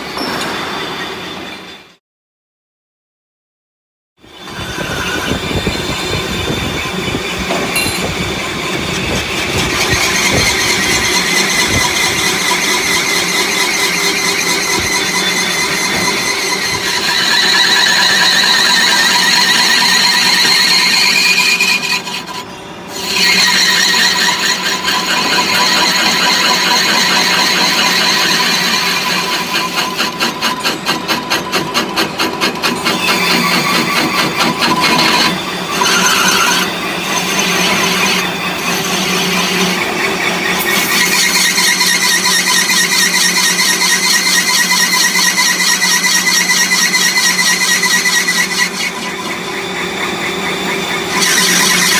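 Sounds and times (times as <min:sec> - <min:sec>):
lathe tool squealing: 0:04.3 - 0:51.9.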